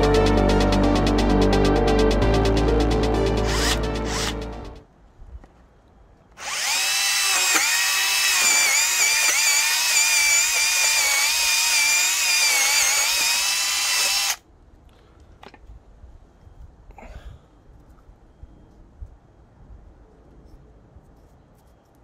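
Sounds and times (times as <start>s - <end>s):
mini saw cutting wood: 3.4s - 4.4s, 6.4s - 14.4s.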